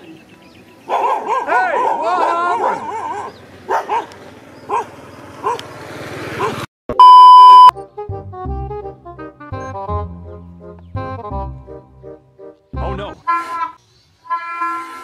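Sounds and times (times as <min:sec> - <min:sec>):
dogs barking: 0:00.8 - 0:05.7, 0:06.3 - 0:06.7
loud electronic beep: 0:06.9 - 0:07.7.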